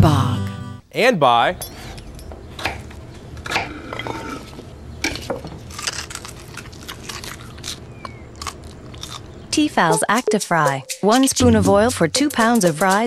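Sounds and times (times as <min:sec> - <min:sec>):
child chewing fries: 0:03.2 - 0:10.0.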